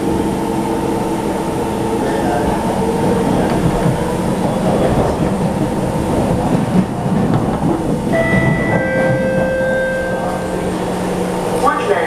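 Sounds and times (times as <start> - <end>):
steady train whine: 0.0 - 12.0
train wheels rumbling on rail: 0.0 - 12.0.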